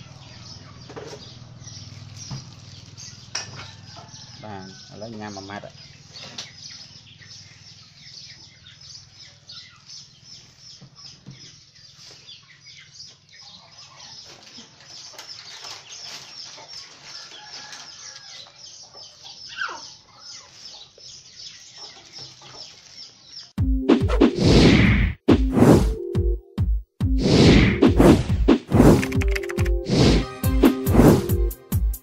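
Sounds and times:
chickens clucking: 0:00.0 - 0:23.3
small birds chirping: 0:00.0 - 0:23.6.

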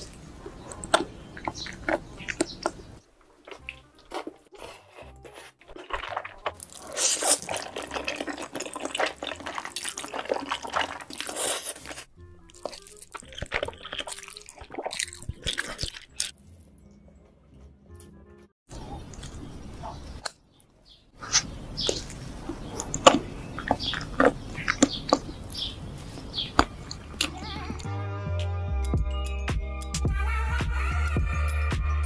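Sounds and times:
lip smacks and clicks: 0:00.0 - 0:16.4, 0:21.2 - 0:28.5
wet chewing: 0:00.0 - 0:16.4, 0:18.7 - 0:27.9
slurping noodles: 0:03.5 - 0:16.3.

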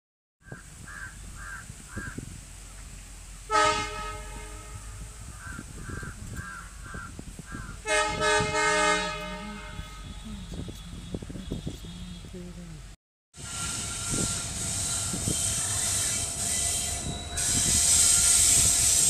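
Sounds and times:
locomotive horn blasts: 0:03.5 - 0:05.3, 0:07.8 - 0:12.4, 0:13.4 - 0:19.0.

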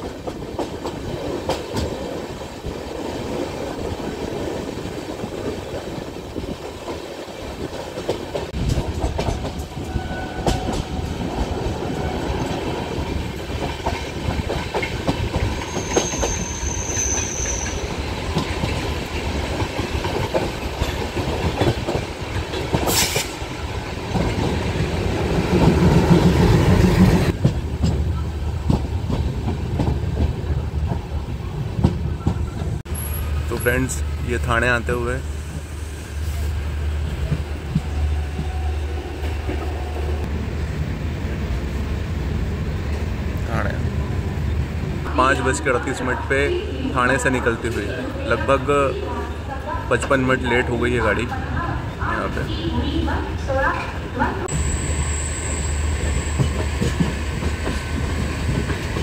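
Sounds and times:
train wheels clicking over rail joints: 0:00.0 - 0:32.8, 0:37.0 - 0:39.7, 0:56.0 - 0:59.0
high squeal: 0:15.6 - 0:17.9, 0:54.5 - 0:56.6.

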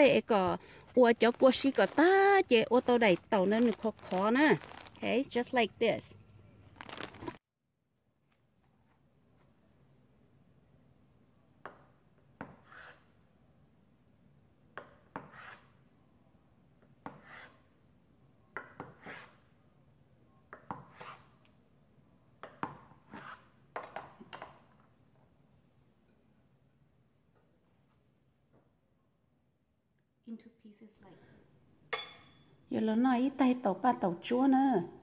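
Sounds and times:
knife scraping on board: 0:12.4 - 0:13.1, 0:15.0 - 0:15.7, 0:17.1 - 0:17.6, 0:18.8 - 0:19.4, 0:20.6 - 0:21.3, 0:23.0 - 0:23.5.

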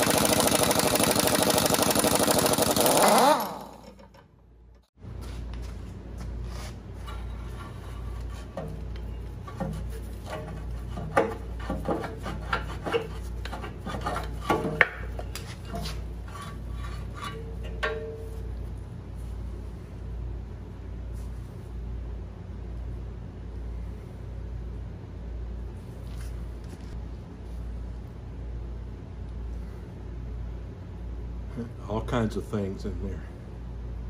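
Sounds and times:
steady low hum: 0:03.8 - 0:34.0
metal sleeve scraping and clinking: 0:06.5 - 0:18.5.

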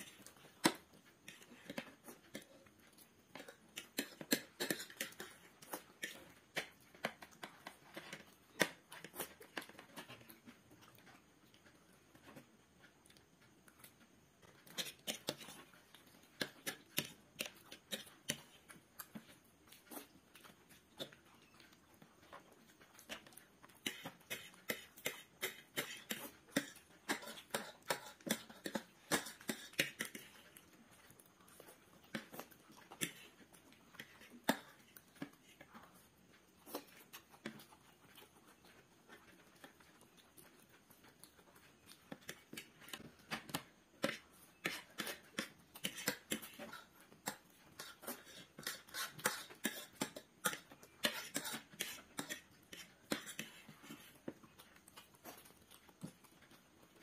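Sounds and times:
chewing noodles: 0:00.0 - 0:57.0.

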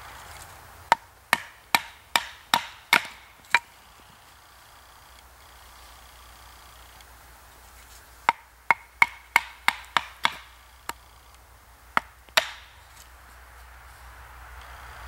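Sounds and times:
knife chopping into wood: 0:00.9 - 0:03.7, 0:08.3 - 0:11.0, 0:12.0 - 0:12.7.

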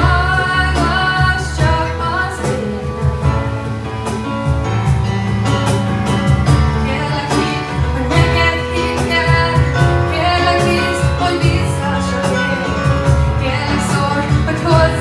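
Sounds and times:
woman singing slow song: 0:00.0 - 0:02.9, 0:06.8 - 0:15.0
electronic keyboard: 0:00.0 - 0:15.0.

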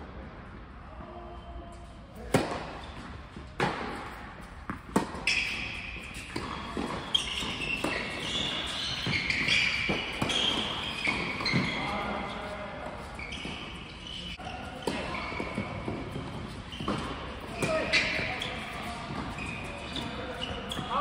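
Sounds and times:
shoes squeaking on court: 0:01.8 - 0:21.0
tennis balls struck by rackets: 0:02.2 - 0:02.8, 0:03.4 - 0:11.7
balls bouncing on hard court: 0:02.2 - 0:21.0.

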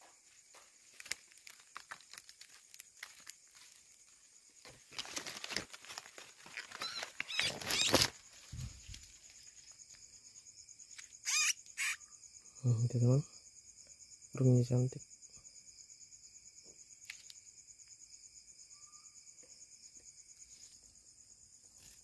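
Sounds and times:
crickets chirping: 0:00.0 - 0:22.0
leaves and twigs rustling: 0:00.1 - 0:10.1
bird wingbeats and thrashing leaves: 0:00.7 - 0:09.7
high squeaks: 0:06.8 - 0:08.1, 0:11.0 - 0:12.0.

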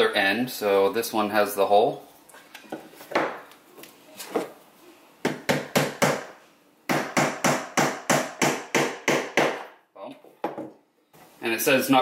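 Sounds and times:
hammer tapping wooden dowel: 0:06.9 - 0:09.7.

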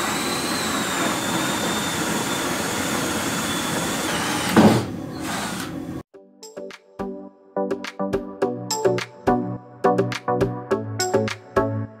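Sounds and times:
cordless drill whining: 0:00.0 - 0:06.0
background music with struck notes: 0:06.2 - 0:12.0.

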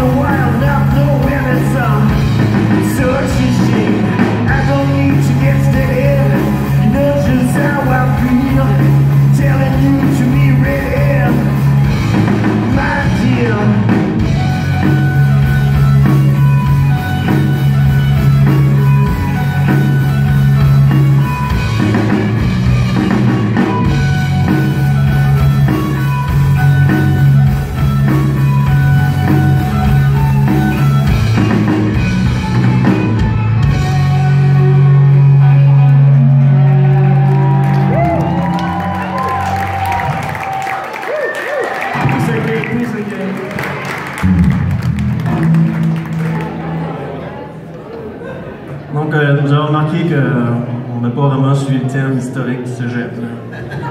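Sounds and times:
drum kit steady beat: 0:00.0 - 0:35.2
distorted electric guitars: 0:00.0 - 0:40.6, 0:43.6 - 0:47.2
electric bass: 0:00.0 - 0:40.7, 0:41.9 - 0:47.7.

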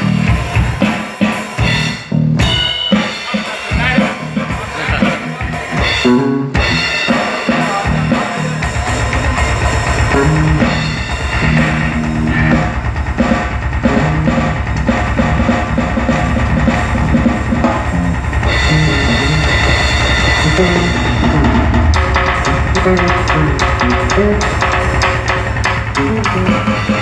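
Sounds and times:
drum kit played fast: 0:00.0 - 0:27.0
pitched notes: 0:02.4 - 0:27.0
bass drum pulse: 0:10.1 - 0:27.0.

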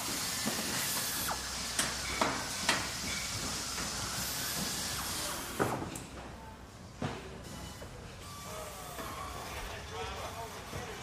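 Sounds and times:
hissing machine noise: 0:00.0 - 0:06.0.

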